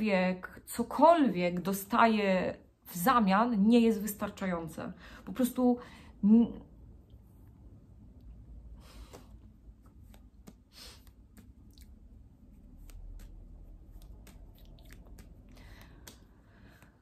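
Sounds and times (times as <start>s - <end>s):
slow quiet breaths: 8.6s - 9.6s, 15.5s - 17.0s.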